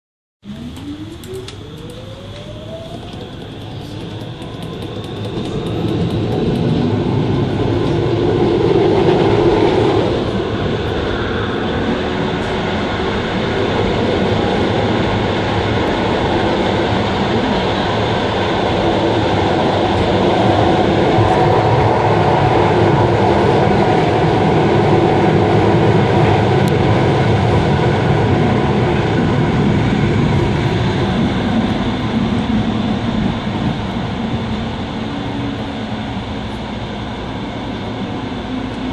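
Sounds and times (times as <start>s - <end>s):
tram rumbling on rails: 0.4s - 38.9s.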